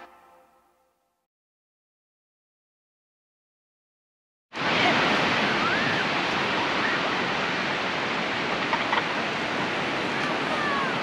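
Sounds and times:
rush of moving water: 4.6 - 11.0.

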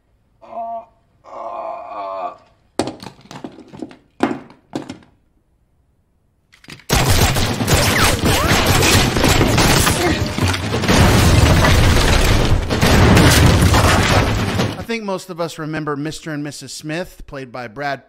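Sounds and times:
loud gunfire: 6.9 - 14.8
crashing: 6.9 - 14.9.

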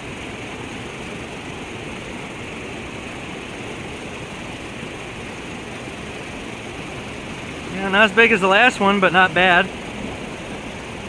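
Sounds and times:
river water rushing: 0.0 - 11.0.

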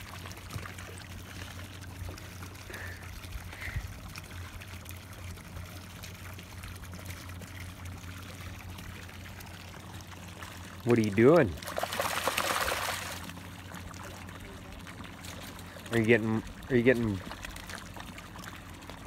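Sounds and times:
steady low hum: 0.0 - 19.0
water lapping at shoreline: 0.0 - 19.0.

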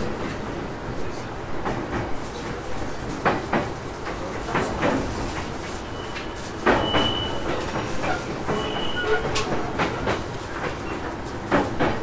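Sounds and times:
train rolling rumble: 0.0 - 12.0
wheel squeals: 5.8 - 9.5.

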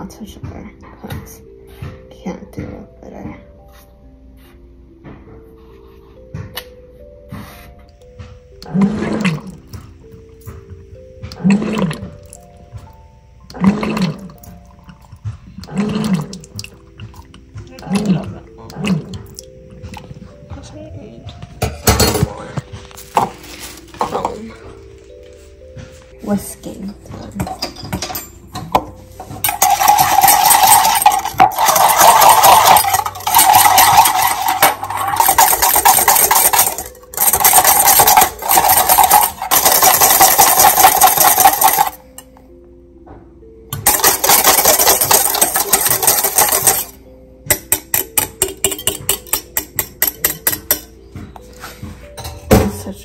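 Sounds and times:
wire whisk rattling in steel bowl: 29.2 - 42.0, 43.8 - 50.9.

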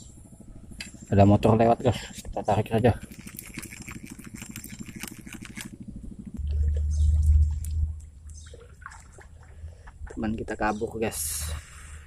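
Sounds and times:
motorboat engine: 0.0 - 12.0
fishing reel clicking: 3.0 - 5.7
loud low rumble: 5.8 - 8.7.

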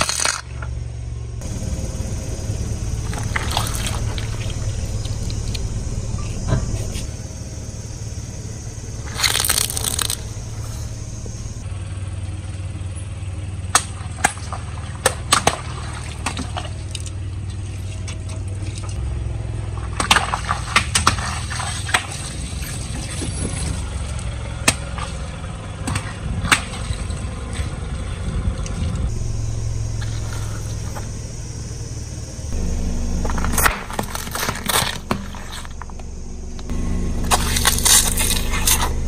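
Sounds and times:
car engine running: 0.0 - 39.0
tyre crushing objects: 33.2 - 36.1, 37.2 - 39.0.

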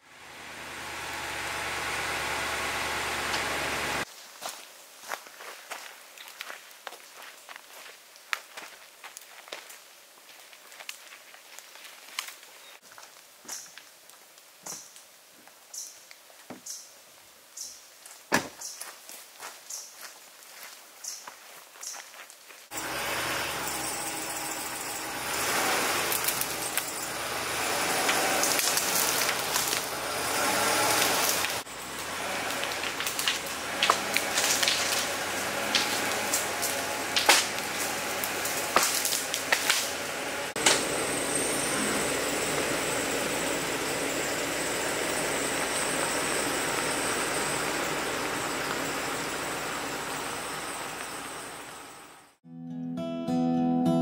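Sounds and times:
truck engine running: 0.0 - 4.1, 22.7 - 52.4
branches scraping and cracking: 4.2 - 13.8, 26.0 - 40.9
sharp wood snaps: 32.5 - 39.9.

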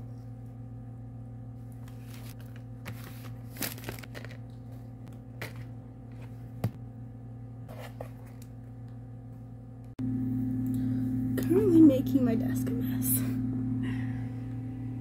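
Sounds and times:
steady low hum: 0.0 - 15.0
fabric pouch rustling: 2.0 - 4.4.

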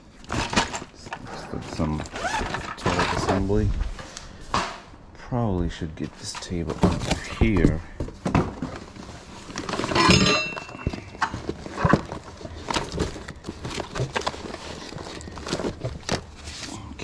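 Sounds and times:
items knocking and scraping: 0.2 - 4.9, 6.0 - 17.0
metallic clank: 9.8 - 10.8.

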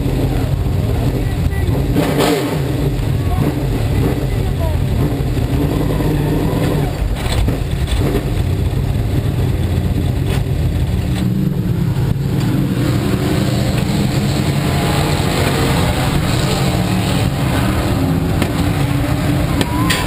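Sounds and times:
race car engine rumbling: 0.0 - 20.0.

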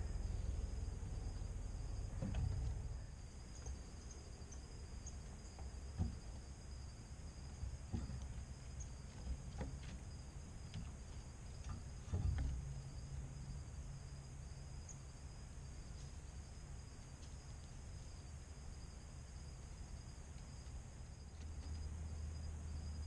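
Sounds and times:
crickets trilling: 0.0 - 23.0
low background rumble: 0.0 - 23.0
thump: 2.1 - 2.9, 5.6 - 6.5, 7.6 - 8.5, 11.7 - 13.0.

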